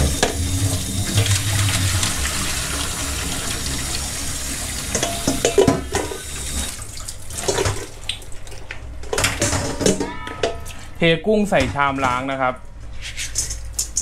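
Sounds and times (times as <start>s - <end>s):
tap water splashing into sink: 4.8s - 9.5s
colander knocking and clattering: 9.1s - 10.7s, 11.6s - 12.4s.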